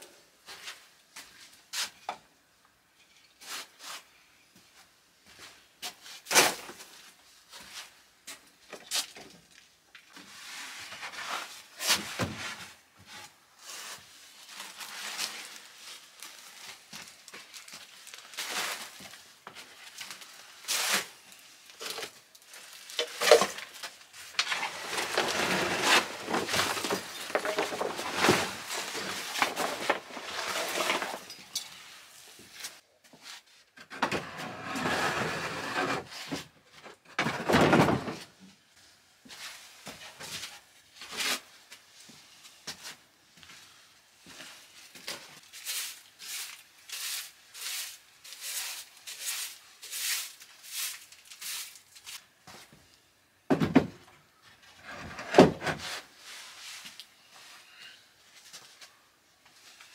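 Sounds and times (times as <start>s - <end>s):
plastic sack rustling: 13.7s - 31.4s.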